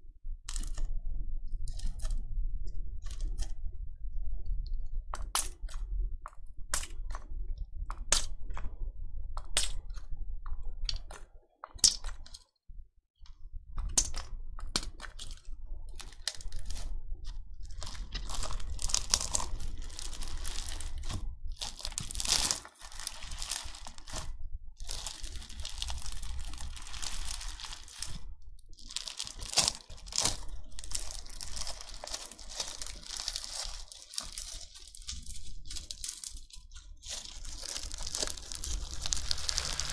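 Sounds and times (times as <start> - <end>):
slime crackling and popping: 7.9 - 8.3, 13.9 - 39.9.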